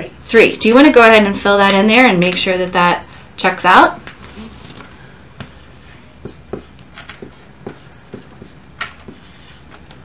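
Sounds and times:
marker writing on whiteboard: 5.4s - 9.7s.

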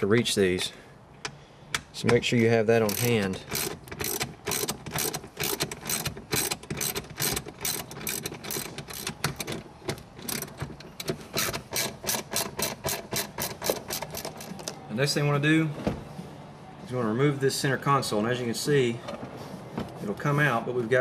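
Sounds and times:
socket ratchet clicking: 2.8s - 14.8s.

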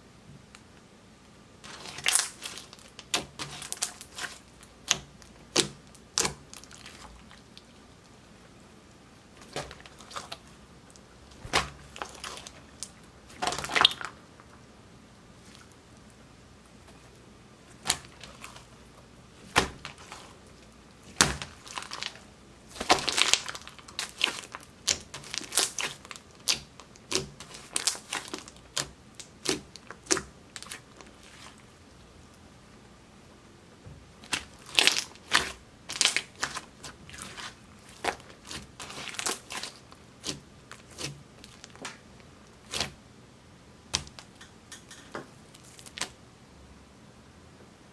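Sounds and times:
sticky slime pops and crackles: 21.1s - 30.8s, 43.9s - 44.4s.

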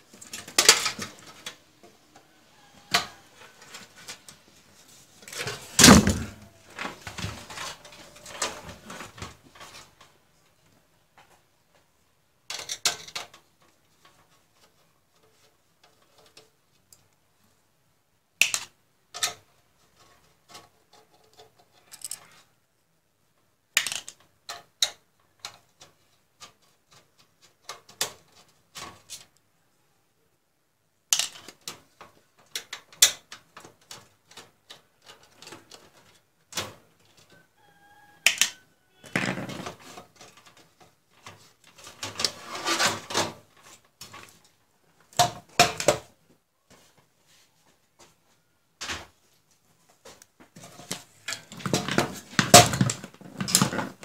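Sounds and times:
metal clicks and clatter: 18.4s - 22.3s.

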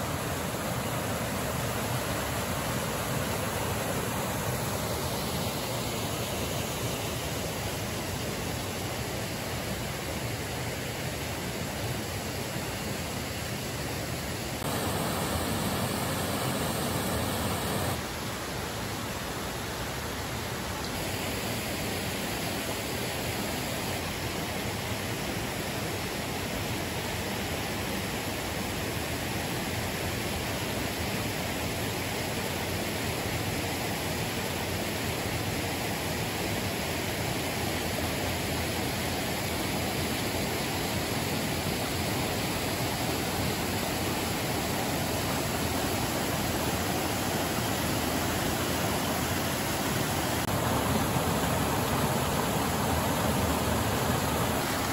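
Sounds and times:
water rushing over rocks: 0.0s - 8.5s, 14.6s - 18.1s, 37.0s - 54.9s.

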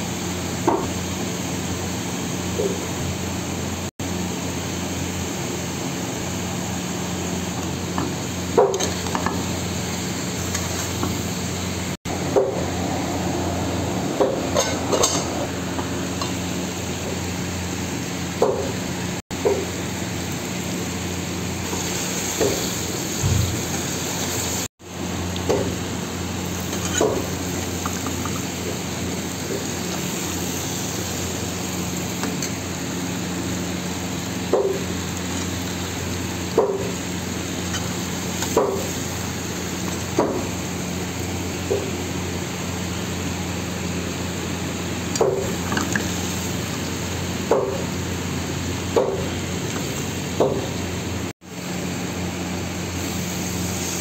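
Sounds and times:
curry sizzling in a pan: 19.6s - 24.7s, 25.3s - 44.0s, 44.6s - 50.8s.

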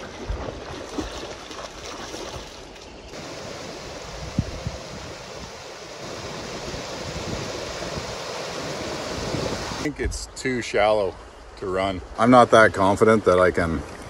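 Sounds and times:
wind on microphone: 3.1s - 10.2s
river rapids over rocks: 3.2s - 9.9s.

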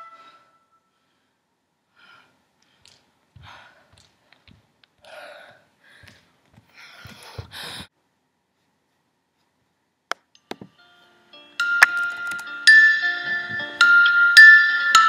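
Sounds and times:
woman breathing and gasping: 0.1s - 4.1s, 5.0s - 7.9s
soft footsteps on floor: 2.8s - 5.0s, 5.9s - 7.9s.

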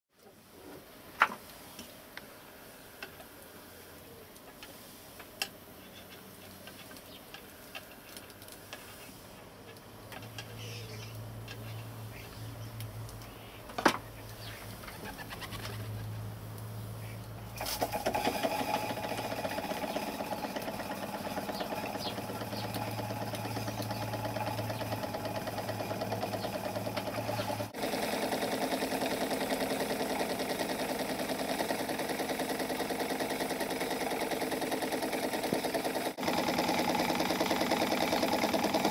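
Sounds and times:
model steam engine running: 17.7s - 38.9s.

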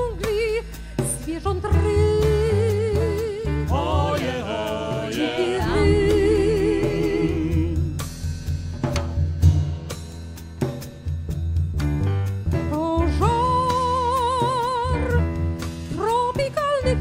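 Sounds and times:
small band playing tango: 0.0s - 8.0s, 10.6s - 17.0s
woman singing with vibrato: 1.3s - 7.9s.

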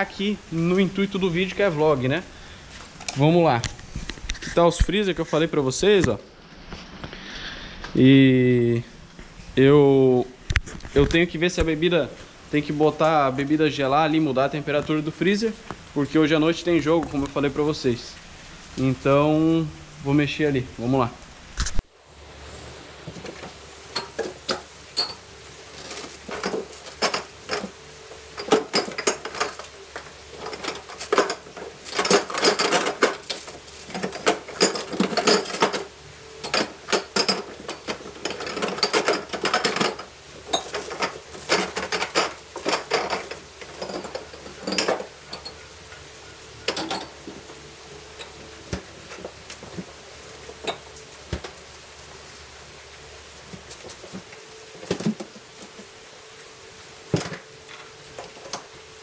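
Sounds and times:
glass bottles clinking: 23.0s - 51.6s.

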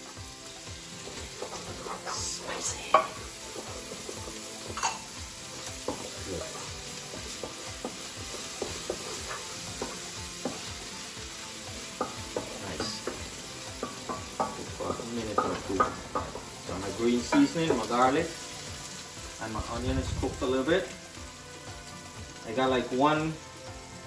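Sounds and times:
onions sizzling in pan: 0.0s - 24.0s
utensil tapping and scraping pan: 1.1s - 10.9s, 11.8s - 19.0s.

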